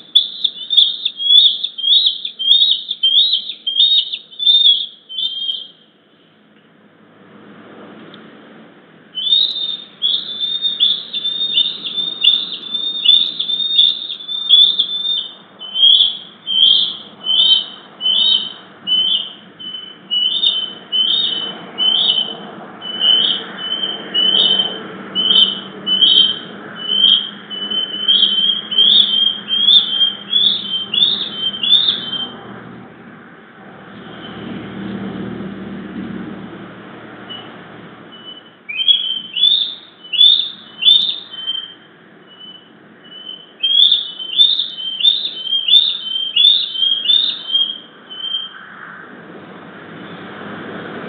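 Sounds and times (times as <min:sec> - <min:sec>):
young eagles squealing calls: 0:00.0 - 0:05.8, 0:09.2 - 0:32.4, 0:38.1 - 0:48.8.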